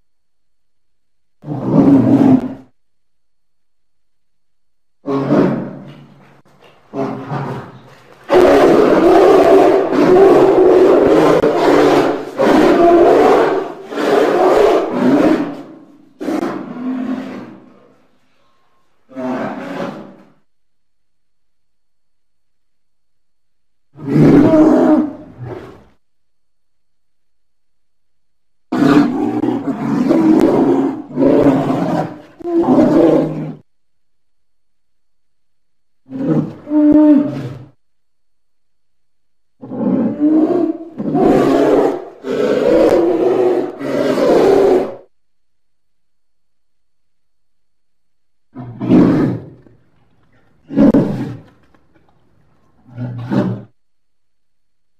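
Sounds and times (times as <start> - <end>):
polar bear roaring: 1.4 - 2.7, 5.0 - 6.0, 6.9 - 17.9, 19.1 - 20.3, 24.0 - 25.9, 28.7 - 33.6, 36.0 - 37.8, 39.6 - 45.1, 48.6 - 49.8, 50.6 - 51.6, 52.8 - 53.8.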